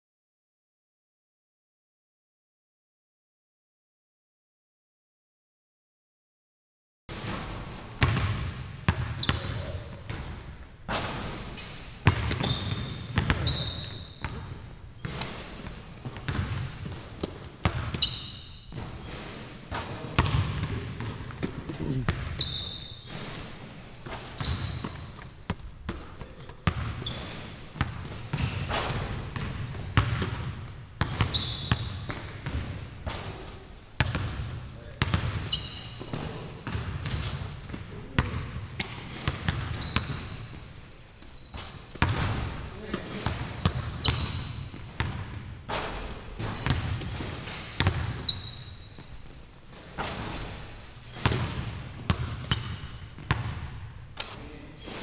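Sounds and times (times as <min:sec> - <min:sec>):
sneakers squeaking: 0:07.1 - 0:55.0
basketball bouncing on hardwood floor: 0:08.0 - 0:10.4, 0:12.0 - 0:15.4, 0:16.0 - 0:18.9, 0:20.2 - 0:22.4, 0:29.4 - 0:32.7, 0:34.0 - 0:40.2, 0:43.2 - 0:45.5, 0:46.4 - 0:48.3, 0:51.2 - 0:53.8.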